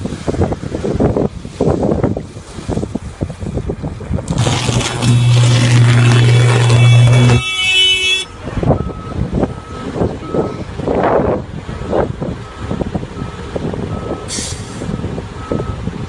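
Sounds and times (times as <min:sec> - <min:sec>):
diesel engine running: 0:04.2 - 0:10.9
reversing alarm beeping: 0:05.0 - 0:10.7
hiss of air: 0:14.3 - 0:14.9.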